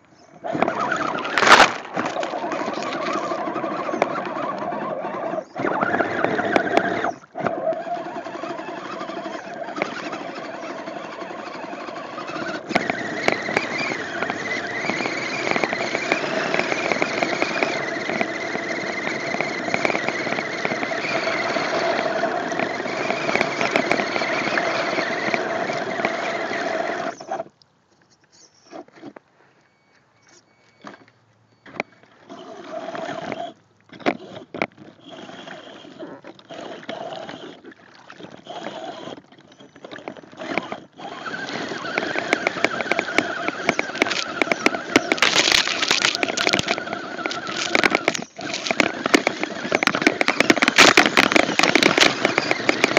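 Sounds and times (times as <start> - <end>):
tires churning through water: 0.4 - 27.2, 34.8 - 52.9
electric motor whining: 0.4 - 27.4, 40.0 - 52.9.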